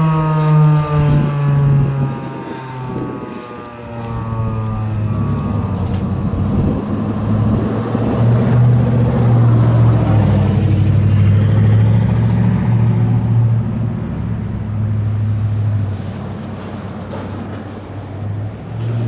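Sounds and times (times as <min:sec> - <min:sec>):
warning siren winding down: 0:00.0 - 0:13.5
haze of noise: 0:00.0 - 0:19.0.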